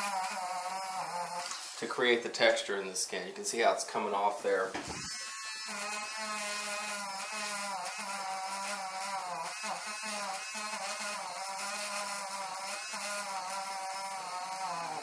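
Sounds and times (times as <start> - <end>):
electric eraser whirring: 4.9 - 15.0.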